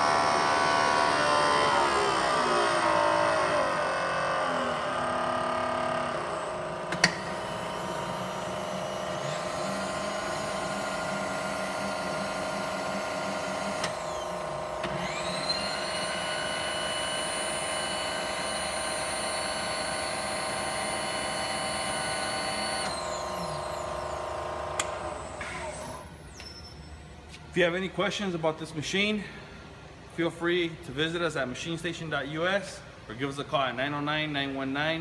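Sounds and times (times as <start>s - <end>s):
milling machine motor hum: 0.0s - 26.0s
power feed whine: 0.0s - 26.7s.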